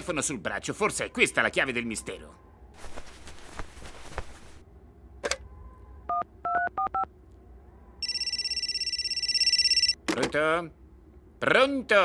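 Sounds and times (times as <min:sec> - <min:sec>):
touch-tone keypad beeps: 0:08.0 - 0:10.0
trilling telephone ring: 0:08.0 - 0:10.0.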